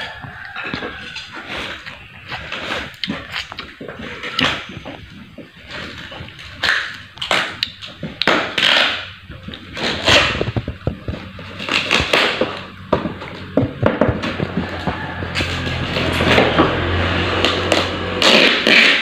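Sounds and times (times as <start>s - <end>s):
scraping on wood: 0.0s - 19.0s.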